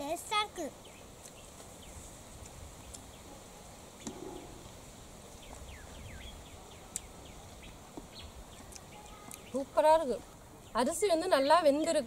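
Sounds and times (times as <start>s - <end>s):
birds chirping: 2.8s - 12.0s.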